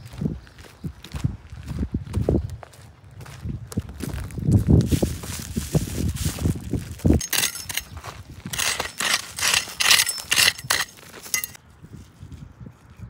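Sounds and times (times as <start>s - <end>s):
hard objects clinking and rattling: 7.1s - 11.6s.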